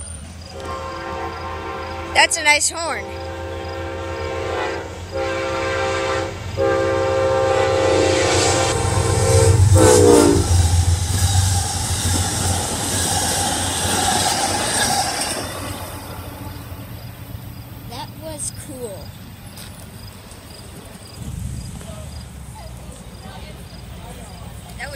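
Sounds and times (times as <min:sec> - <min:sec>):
locomotive air horn blasts: 0:00.5 - 0:11.4
train wheels clickety-clack: 0:09.6 - 0:17.2.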